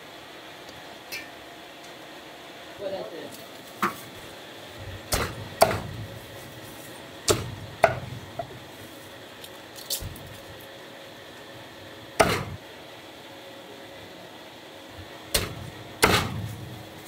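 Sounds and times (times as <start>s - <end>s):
meat cleaver chopping on wood: 5.1s - 6.1s, 7.2s - 8.5s, 12.2s - 12.6s, 15.3s - 16.6s.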